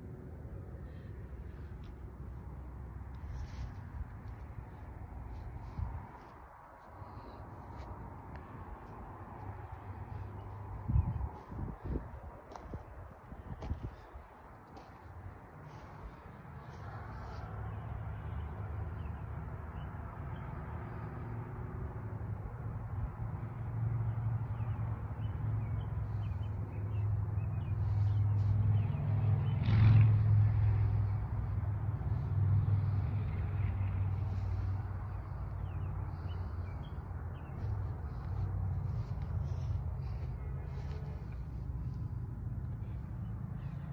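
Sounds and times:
vehicle engine rumble passing: 0.0 - 43.9.

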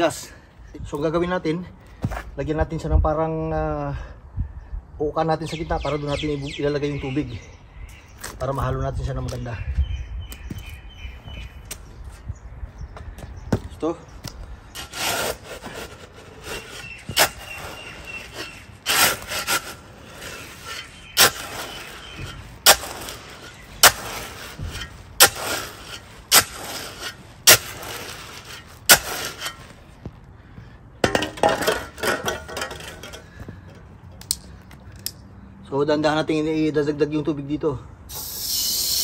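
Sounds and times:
shovel scraping concrete mix: 14.7 - 30.0, 31.0 - 33.3.

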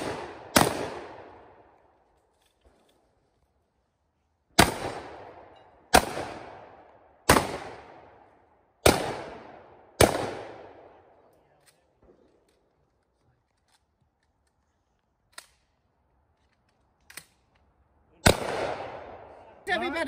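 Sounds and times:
shotgun shots: 0.0 - 1.5, 4.6 - 8.2, 8.8 - 10.9, 18.2 - 19.3.

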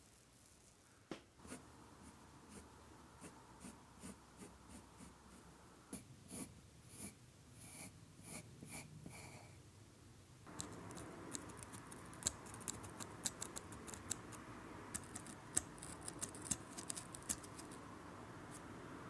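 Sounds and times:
pencil scratching on paper: 1.4 - 5.2, 5.9 - 9.4
pencil lead ticks: 10.5 - 17.8.

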